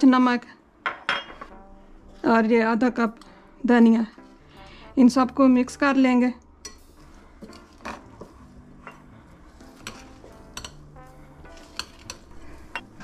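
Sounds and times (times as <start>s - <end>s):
metal spoon stirring in glass bowl: 9.6s - 13.0s
spoon clinking and scraping glass: 9.7s - 13.0s.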